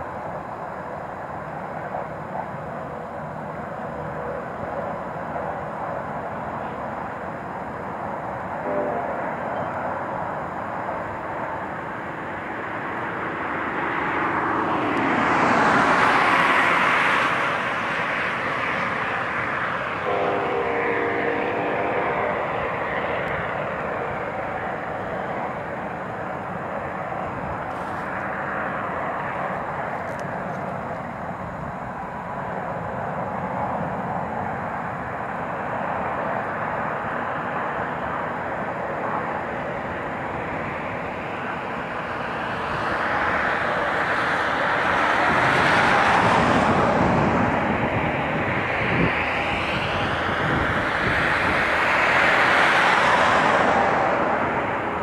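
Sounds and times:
distant vehicles rumbling: 0.0 - 55.0
short horn-like tone: 8.6 - 9.2, 20.0 - 23.3.

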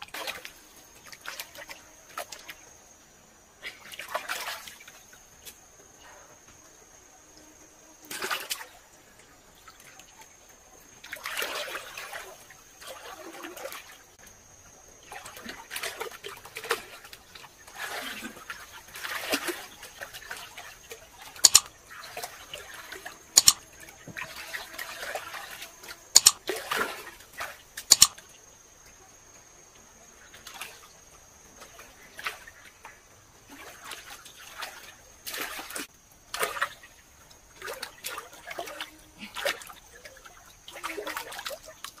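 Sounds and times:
water sloshing and splashing: 0.0 - 2.8, 3.6 - 6.0, 8.1 - 29.0, 29.9 - 42.0
hands slapping water: 21.4 - 21.7, 23.4 - 23.6.

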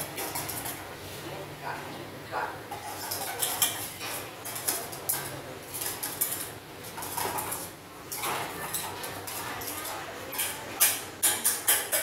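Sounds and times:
dishes and utensils clinking: 2.7 - 12.0.

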